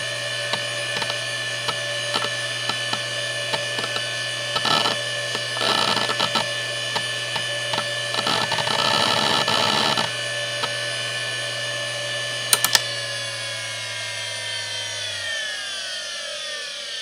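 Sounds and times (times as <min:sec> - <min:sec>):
hard drive spinning down: 0:00.0 - 0:17.0
hard drive whine: 0:00.0 - 0:17.0
sharp clicks: 0:12.5 - 0:12.9.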